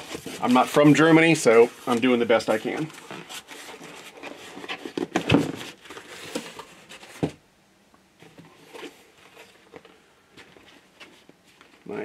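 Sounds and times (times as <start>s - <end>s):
cardboard box rustling and knocking: 2.6s - 7.4s.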